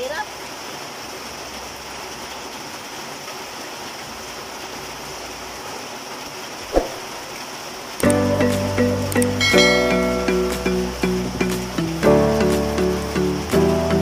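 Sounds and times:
rain on a metal roof: 0:00.0 - 0:14.0.

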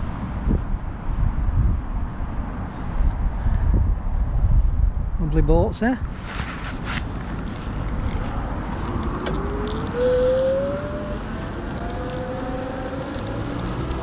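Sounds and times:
wind rumble on microphone: 0:00.0 - 0:14.0
electric bike motor whining: 0:08.4 - 0:14.0.

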